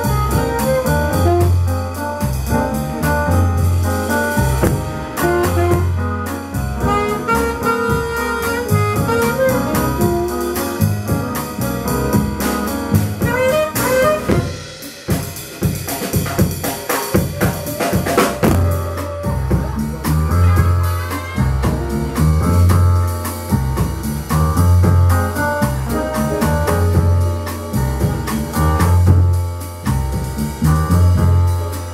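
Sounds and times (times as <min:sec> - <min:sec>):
saxophone lead: 0:00.0 - 0:01.8, 0:04.9 - 0:11.1, 0:13.2 - 0:14.7
pulsing bass line: 0:00.0 - 0:14.7, 0:18.3 - 0:31.9
drum kit: 0:00.0 - 0:31.9
live jazz band: 0:00.0 - 0:31.9.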